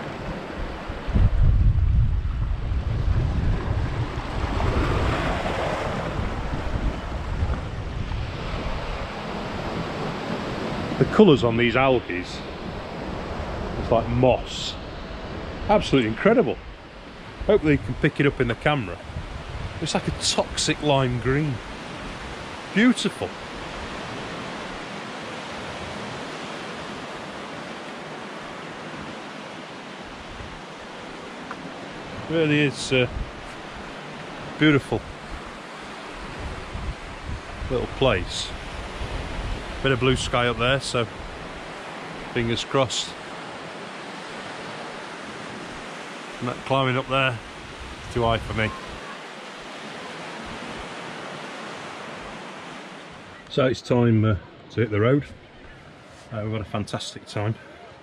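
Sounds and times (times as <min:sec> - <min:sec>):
wind buffeting microphone: 0:00.0 - 0:22.7, 0:30.0 - 0:42.4, 0:43.3 - 0:52.4
surf on rocky shore: 0:00.0 - 0:58.0.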